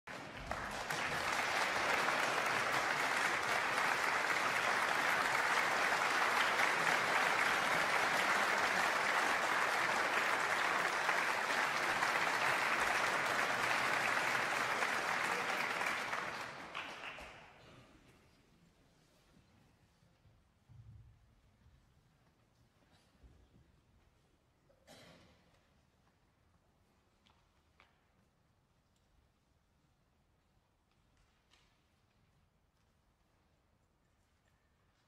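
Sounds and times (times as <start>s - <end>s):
audience applauding: 0.0s - 17.6s.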